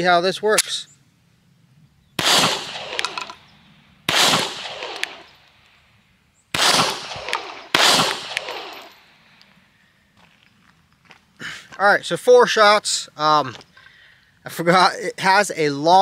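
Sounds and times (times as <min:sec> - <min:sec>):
pistol shots ringing: 0:02.2 - 0:03.5, 0:04.1 - 0:05.7, 0:06.5 - 0:09.4.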